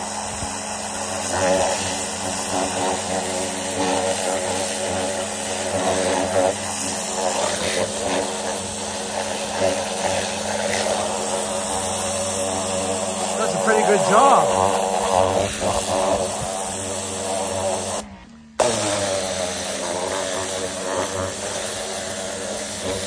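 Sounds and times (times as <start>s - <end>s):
water jet hissing: 0.0s - 18.0s
pressure washer motor humming: 0.0s - 23.0s.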